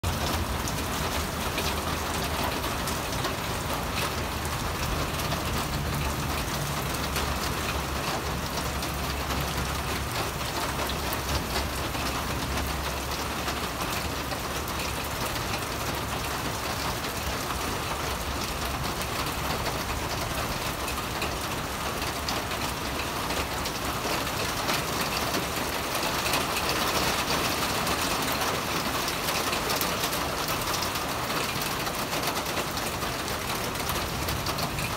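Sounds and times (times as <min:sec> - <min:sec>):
rain falling: 0:00.0 - 0:34.9.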